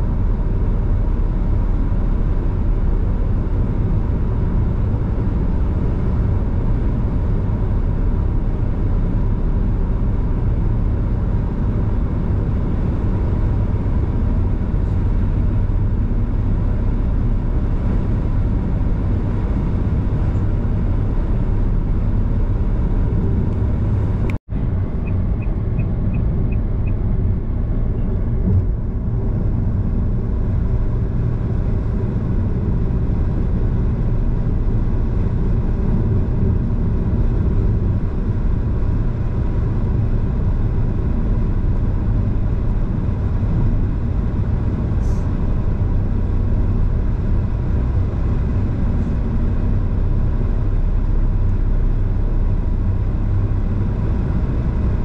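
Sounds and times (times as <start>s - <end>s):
car road and engine rumble: 0.0s - 55.0s.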